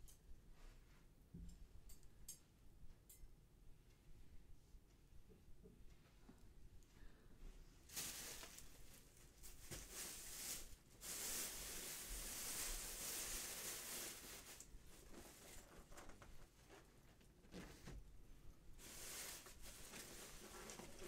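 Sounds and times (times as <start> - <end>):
plastic bag rustling: 7.8 - 18.0, 18.8 - 21.0
foam boxes handled: 7.9 - 15.8.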